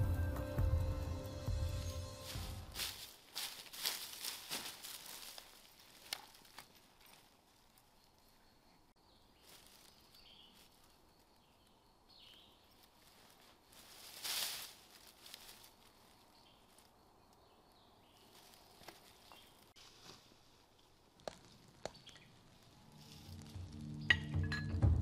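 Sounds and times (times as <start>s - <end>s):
backpack rustling: 2.3s - 7.8s.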